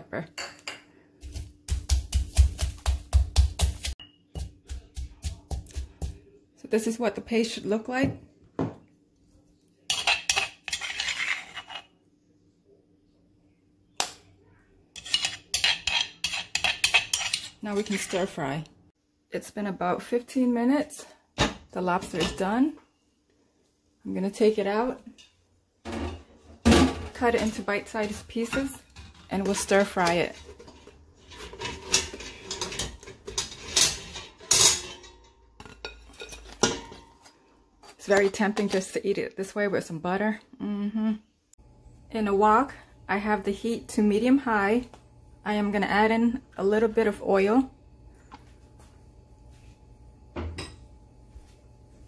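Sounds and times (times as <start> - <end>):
metal spoon scraping stone mortar: 9.9 - 11.9, 15.0 - 18.4
metal tongs scraping steel pot: 9.9 - 11.9, 15.0 - 18.4, 27.3 - 38.8.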